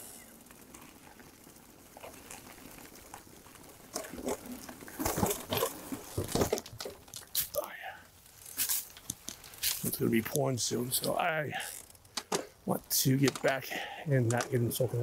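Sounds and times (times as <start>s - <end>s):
bike tyres rolling over leaves: 0.0s - 15.0s
bike thumps: 3.9s - 7.5s, 12.1s - 12.6s.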